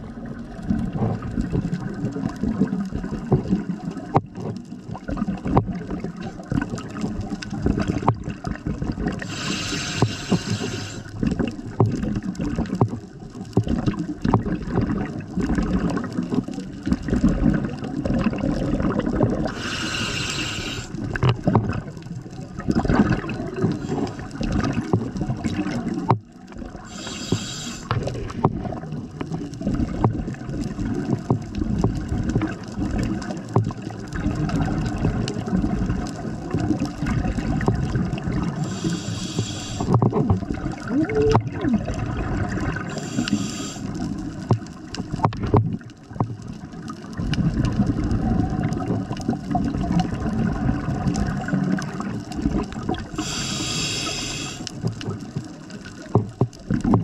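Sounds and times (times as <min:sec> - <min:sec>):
bubbling rumble of exhaled air: 0:00.0 - 0:57.0
scuba regulator hissing inhalations: 0:09.2 - 0:11.2, 0:19.4 - 0:21.0, 0:23.7 - 0:24.4, 0:26.8 - 0:28.1, 0:38.5 - 0:40.0, 0:42.8 - 0:44.1, 0:53.1 - 0:54.8.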